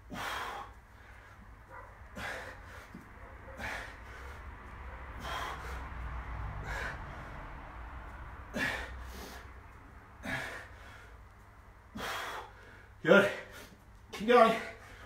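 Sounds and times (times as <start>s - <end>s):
man exhaling forcefully: 0.1s - 0.8s, 2.2s - 2.9s, 5.2s - 5.9s, 6.6s - 7.3s, 8.5s - 9.5s, 10.2s - 11.1s, 11.9s - 13.8s.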